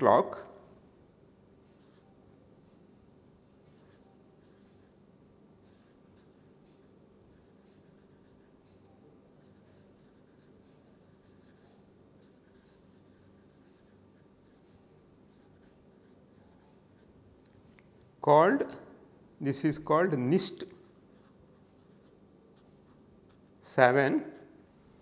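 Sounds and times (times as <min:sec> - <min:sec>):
faint low hum: 0:00.0 - 0:25.0
marker scratching on paper: 0:03.7 - 0:05.0, 0:05.6 - 0:08.6, 0:09.4 - 0:14.7, 0:15.3 - 0:17.2.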